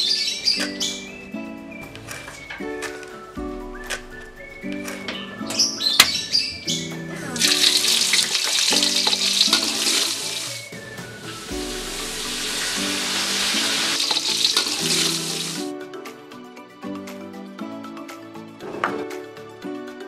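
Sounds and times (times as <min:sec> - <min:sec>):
background music: 0:00.0 - 0:20.0
greens sizzling in a hot pan: 0:07.4 - 0:10.6, 0:11.6 - 0:15.7.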